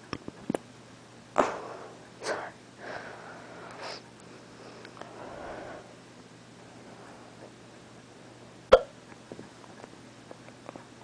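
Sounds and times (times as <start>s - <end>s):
heavy breathing: 1.4s - 6.0s.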